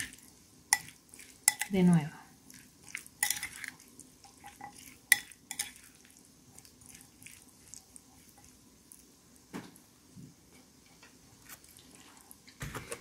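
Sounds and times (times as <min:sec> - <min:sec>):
spoon clinking against bowl: 0:00.7 - 0:01.8, 0:03.2 - 0:05.9
spoon scraping ticks: 0:02.8 - 0:08.6.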